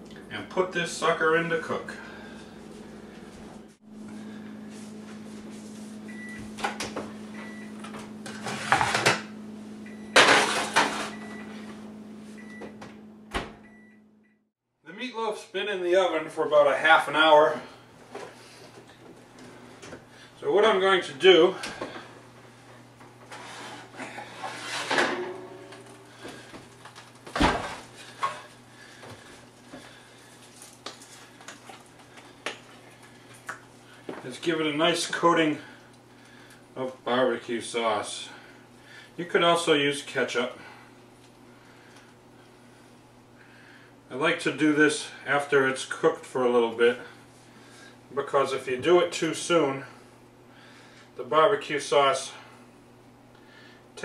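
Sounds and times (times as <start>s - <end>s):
steady low hum: 0.0s - 54.0s
oven door opening and shutting: 12.5s - 13.7s, 23.3s - 26.1s, 27.3s - 27.8s.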